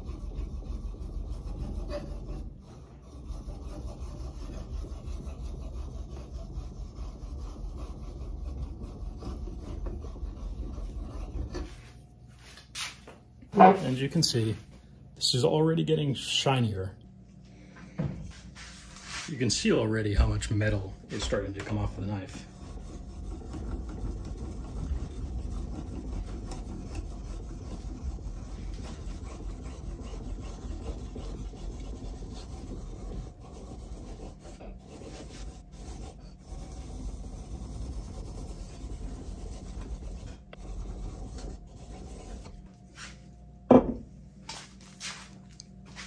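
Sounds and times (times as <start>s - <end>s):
loud short knock: 43.7s - 44.1s.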